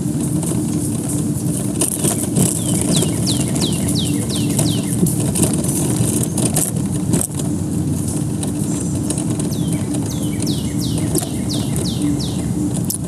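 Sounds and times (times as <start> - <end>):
motor vehicle rumbling: 0.0 - 13.0
bird whistling: 2.6 - 5.0, 9.5 - 12.6.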